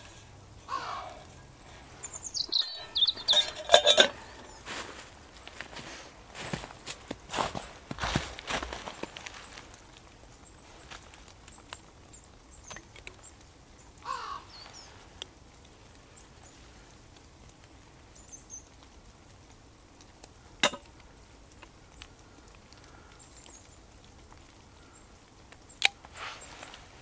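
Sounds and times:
small birds chirping: 0.0 - 27.0
crow cawing: 0.6 - 3.3, 14.0 - 14.6.

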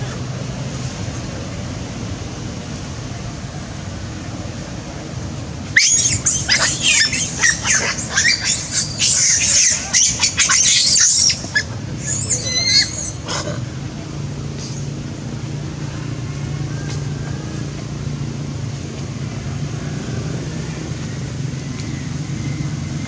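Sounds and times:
monkeys screaming: 5.8 - 13.7.

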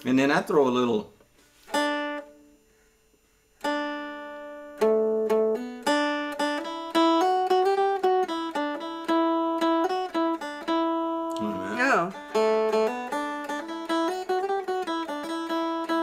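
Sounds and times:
dulcimer playing: 3.6 - 16.0.

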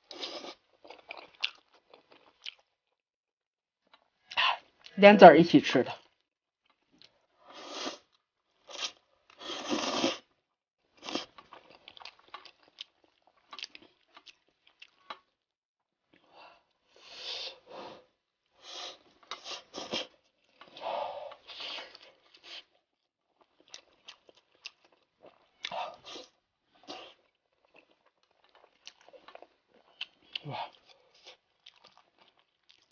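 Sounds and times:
person chewing food: 0.0 - 3.0, 6.1 - 7.4, 10.9 - 15.4, 16.1 - 32.9.

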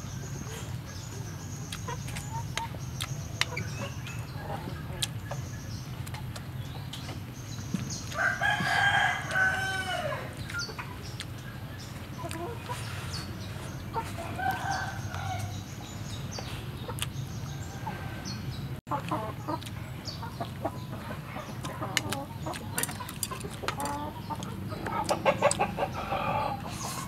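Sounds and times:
rooster crowing: 8.2 - 10.3, 14.2 - 15.5.

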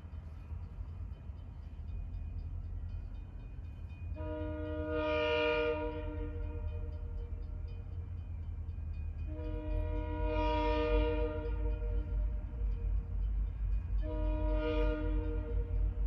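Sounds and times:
locomotive air horn blast: 4.2 - 6.6, 9.3 - 12.0, 14.0 - 15.7.

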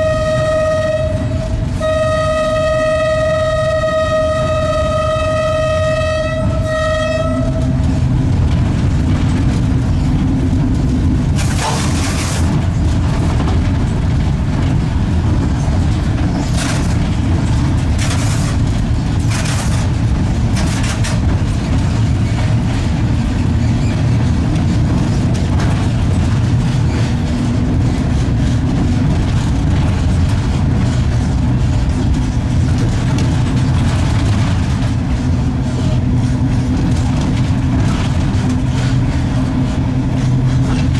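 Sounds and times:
locomotive horn: 0.0 - 8.0
electric locomotive rumbling: 0.0 - 40.9.

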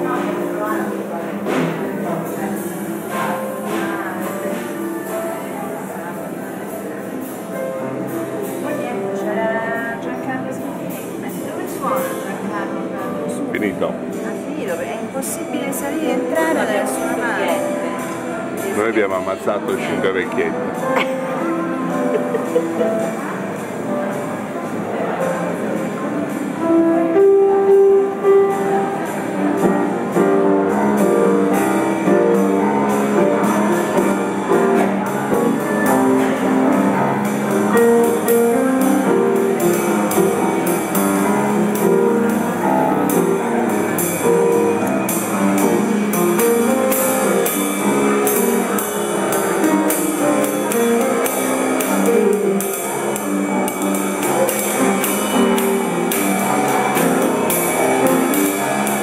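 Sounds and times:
snare drum and cymbal: 0.0 - 5.8, 27.2 - 59.0.

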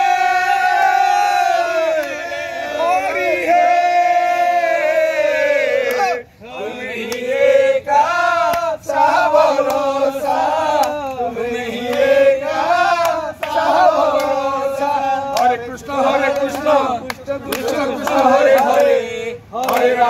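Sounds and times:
men chanting in unison: 0.0 - 20.0
sharp hand claps: 1.9 - 2.2, 8.4 - 8.7, 9.6 - 9.9, 10.7 - 11.2, 11.8 - 12.2, 12.9 - 14.4, 15.3 - 15.6, 16.2 - 19.0, 19.6 - 20.0.

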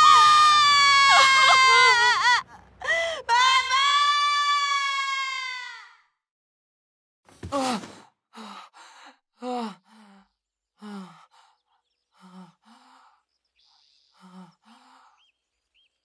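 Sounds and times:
faint bird chirps: 9.8 - 16.0.

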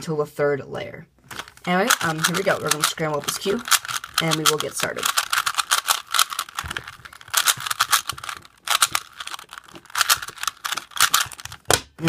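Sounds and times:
puzzle cube clicking: 1.3 - 12.0.

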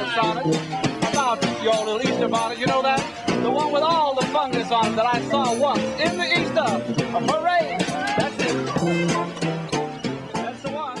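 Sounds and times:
sharp rhythmic strikes: 0.0 - 11.0
small live band playing: 0.0 - 11.0
clarinet playing lively tune: 6.5 - 10.9.

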